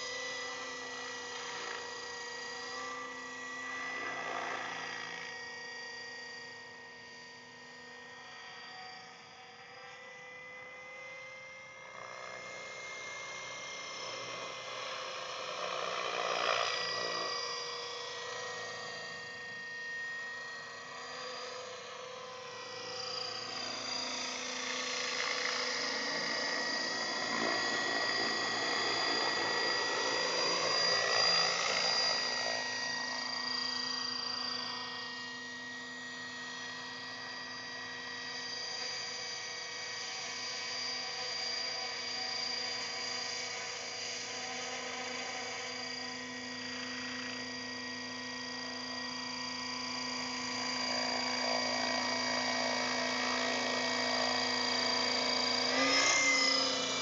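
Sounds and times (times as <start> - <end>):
model helicopter whine: 0.0 - 57.0
rotor blades: 50.6 - 57.0.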